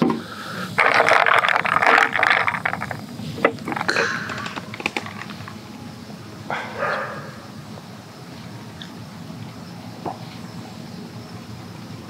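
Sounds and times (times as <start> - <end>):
drink fizzing over ice: 0.4 - 5.4.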